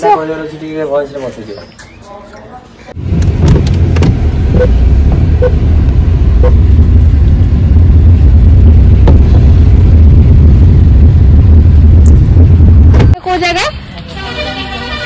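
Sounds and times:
car cabin low rumble: 3.0s - 13.2s.

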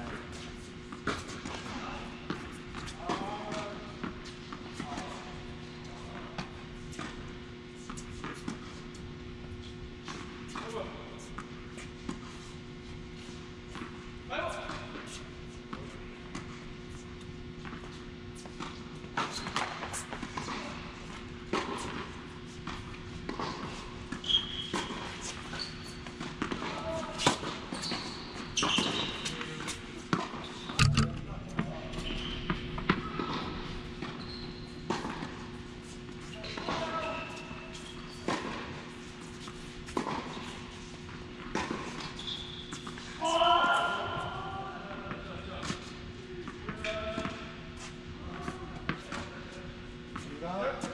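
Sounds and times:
shoe squeaks: 24.2s - 26.2s, 26.8s - 29.6s, 30.4s - 33.5s, 34.1s - 34.9s, 36.2s - 38.3s, 42.1s - 42.8s
steady low hum: 29.8s - 34.0s
tennis ball bouncing: 30.1s - 34.1s
tennis racquet striking ball: 30.2s - 34.1s
tennis ball knocks: 30.8s - 31.8s
footsteps: 30.8s - 32.7s.

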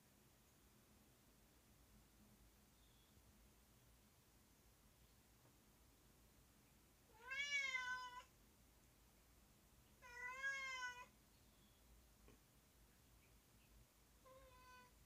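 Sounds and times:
cat meowing: 7.1s - 8.3s, 10.0s - 11.1s, 14.2s - 15.0s.

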